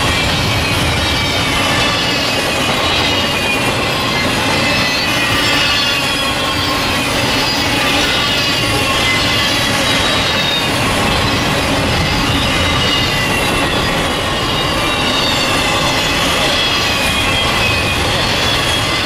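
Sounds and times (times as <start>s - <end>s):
high wheel squeal: 0.0s - 19.0s
train wheels rolling on rail: 0.0s - 19.0s.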